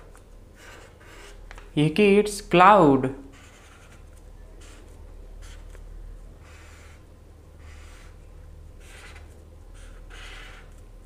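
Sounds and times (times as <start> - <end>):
faint low hum: 0.0 - 11.0
marker pen scratching on paper: 0.6 - 1.4, 3.2 - 5.8, 6.4 - 8.2, 8.8 - 10.9.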